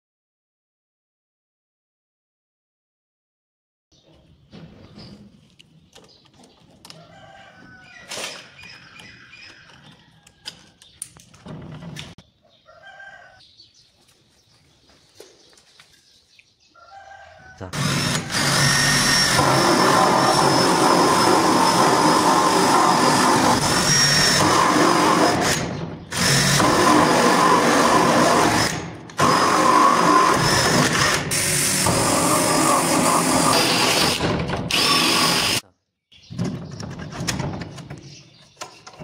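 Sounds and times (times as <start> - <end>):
handling knocks and clicks: 4.1 - 7.1, 8.1 - 12.2
cordless drill with hole saw boring wood: 17.7 - 35.6.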